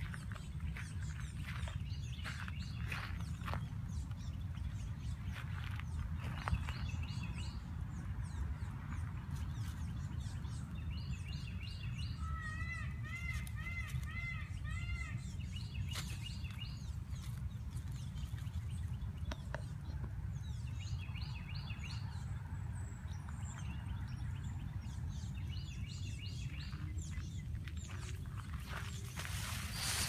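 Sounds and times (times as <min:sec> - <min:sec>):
steady low rumble: 0:00.0 - 0:12.2
small birds chirping: 0:00.0 - 0:30.0.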